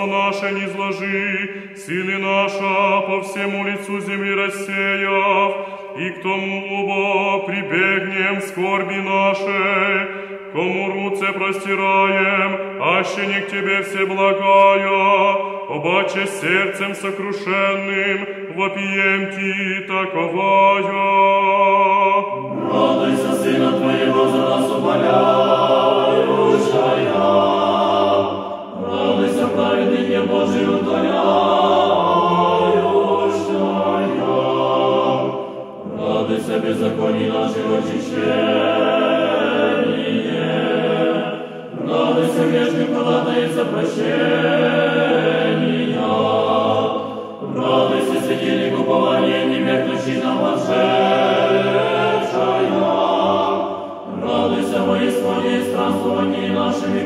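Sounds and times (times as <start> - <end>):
choir singing unaccompanied: 0.0 - 57.0.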